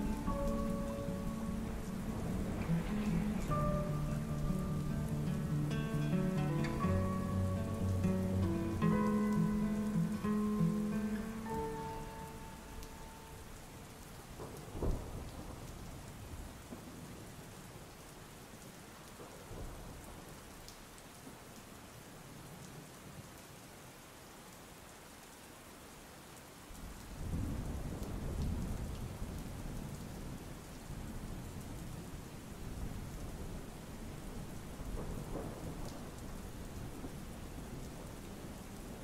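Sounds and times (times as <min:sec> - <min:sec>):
rolling thunder: 0:00.0 - 0:07.6, 0:14.3 - 0:16.9, 0:32.7 - 0:39.0
heavy rain: 0:00.0 - 0:39.0
sharp thunder crack: 0:01.3 - 0:04.4.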